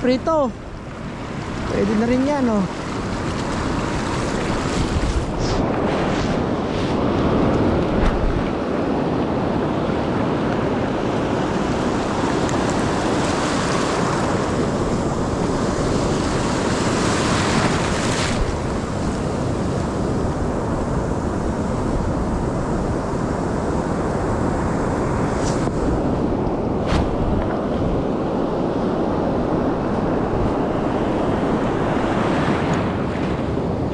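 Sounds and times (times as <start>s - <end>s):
ocean surf breaking: 0.0s - 33.9s
wind buffeting microphone: 0.0s - 33.9s.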